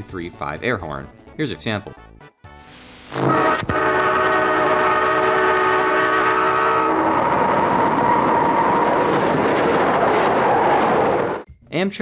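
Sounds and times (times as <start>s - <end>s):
locomotive air horn chord: 2.6s - 8.1s
passing train rushing: 3.1s - 11.5s.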